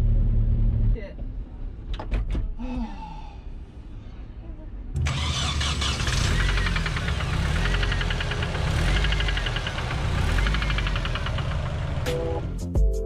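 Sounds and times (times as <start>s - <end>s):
fast engine ticking: 5.0s - 12.5s
car engine idling: 5.0s - 12.6s.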